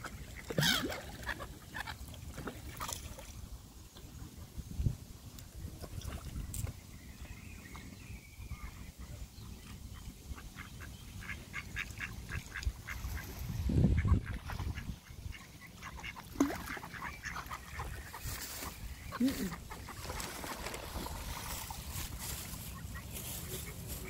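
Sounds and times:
ducks quacking: 0:10.3 - 0:20.7, 0:21.6 - 0:24.0.

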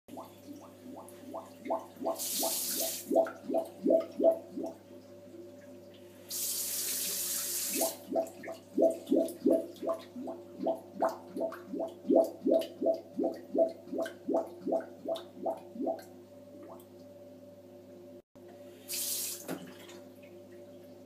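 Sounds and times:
toilet bowl gurgling: 0:00.1 - 0:04.8, 0:06.3 - 0:16.8.

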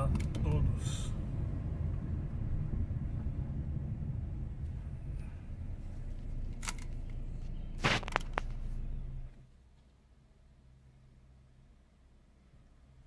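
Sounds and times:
car driving rumble from inside: 0:00.0 - 0:09.4.

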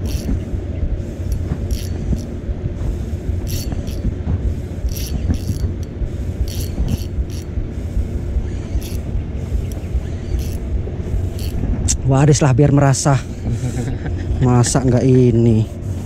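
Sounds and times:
fishing reel drag clicking: 0:00.0 - 0:00.4, 0:01.2 - 0:02.4, 0:03.4 - 0:04.1, 0:04.8 - 0:07.6, 0:08.5 - 0:11.6
low rumble: 0:00.0 - 0:16.0.

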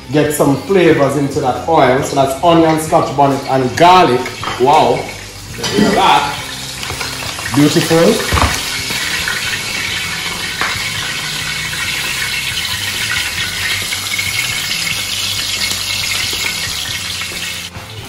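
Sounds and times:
vegetables sizzling in hot oil: 0:04.2 - 0:17.8.

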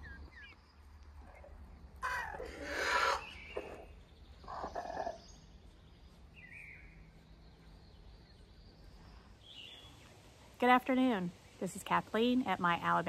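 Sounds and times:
faint bird chirps: 0:00.0 - 0:10.1
chickens calling: 0:01.2 - 0:05.7.

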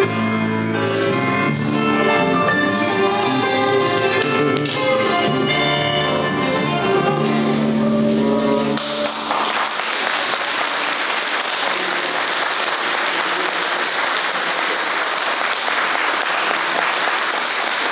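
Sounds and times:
audience applause: 0:08.8 - 0:17.9.

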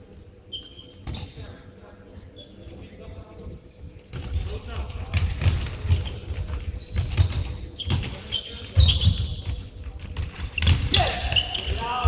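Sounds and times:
shoes squeaking on court: 0:00.5 - 0:01.5, 0:04.1 - 0:12.0.

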